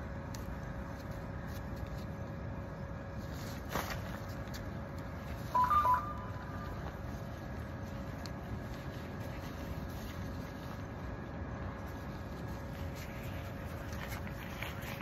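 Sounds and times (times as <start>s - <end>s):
faint constant hum: 0.0s - 15.0s
low background rumble: 0.0s - 15.0s
electronic beeps: 5.5s - 6.8s.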